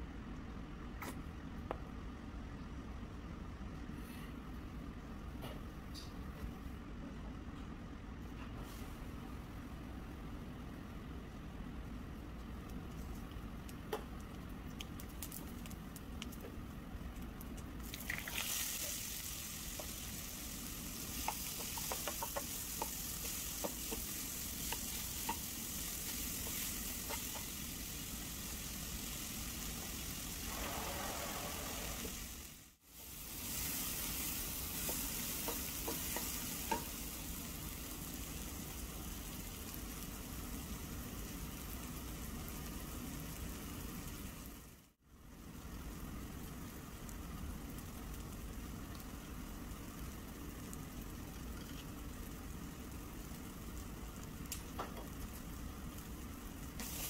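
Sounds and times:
onions sizzling in oil: 0:17.8 - 0:57.0.

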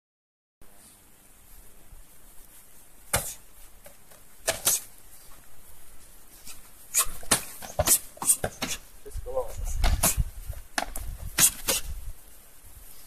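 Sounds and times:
sharp slaps of kicks and punches: 0:03.1 - 0:03.4, 0:04.4 - 0:04.9, 0:07.0 - 0:08.8, 0:09.8 - 0:10.2, 0:10.8 - 0:11.9.

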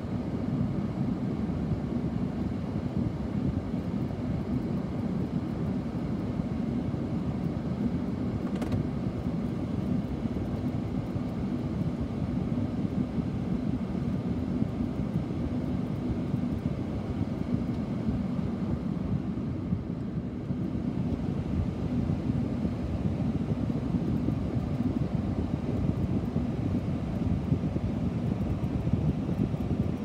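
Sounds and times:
vehicle cabin road rumble: 0:08.4 - 0:10.8.

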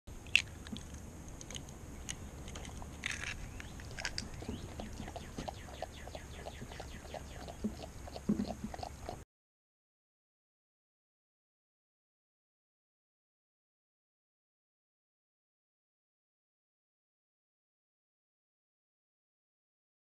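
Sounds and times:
dog lapping: 0:03.7 - 0:09.2.

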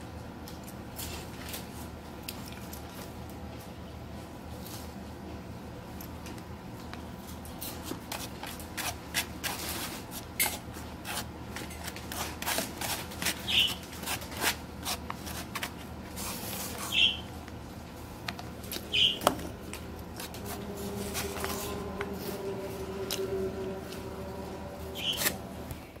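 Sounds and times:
low steady hum: 0:00.0 - 0:26.0
plastic fork scraping styrofoam: 0:11.0 - 0:17.1
high squeaks: 0:13.4 - 0:13.9, 0:20.2 - 0:25.6.

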